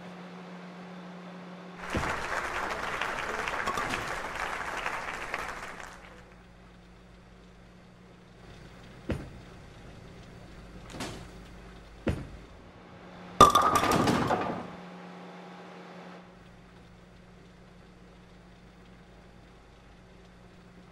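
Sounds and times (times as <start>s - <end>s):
knocks: 9.0s - 9.6s, 10.9s - 12.6s
crash of hard objects clattering: 13.4s - 14.8s.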